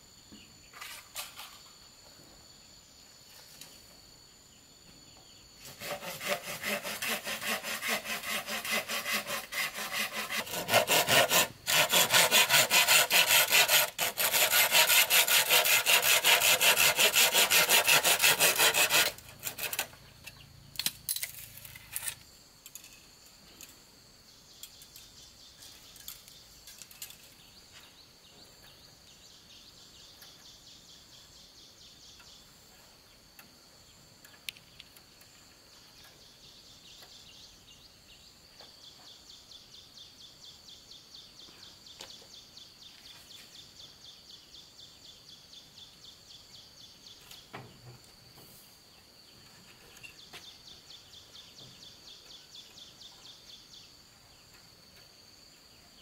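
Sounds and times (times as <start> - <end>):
insects chirring: 0.0 - 56.0
hacksaw cutting bamboo: 5.7 - 20.0.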